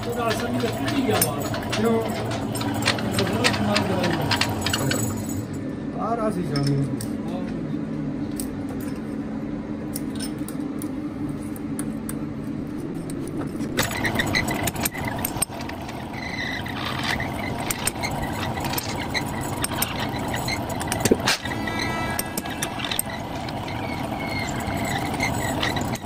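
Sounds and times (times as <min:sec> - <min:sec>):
metal lathe humming: 0:00.0 - 0:05.4, 0:12.6 - 0:26.0.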